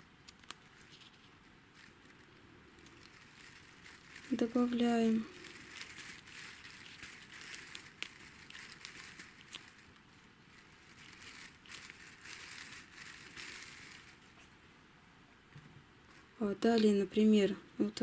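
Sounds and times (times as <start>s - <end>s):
small crackles and clicks: 0.0s - 14.6s, 16.1s - 17.3s
tape crinkling: 0.0s - 14.6s.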